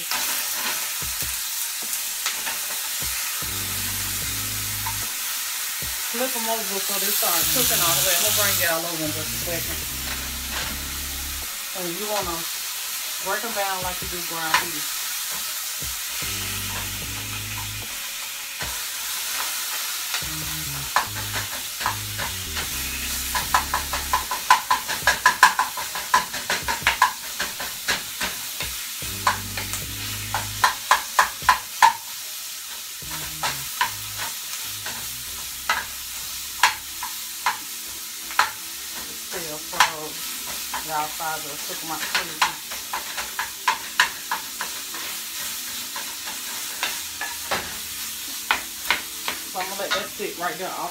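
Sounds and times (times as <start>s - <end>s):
sausage sizzling in a skillet: 0.0s - 50.9s
spatula tapping and scraping pan: 20.5s - 32.2s, 33.0s - 36.0s, 36.6s - 40.9s, 41.6s - 50.2s.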